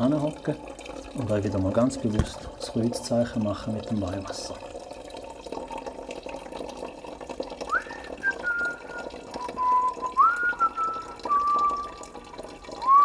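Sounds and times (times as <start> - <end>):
water running into plastic bottle: 0.0 - 13.0
person whistling: 7.7 - 12.0.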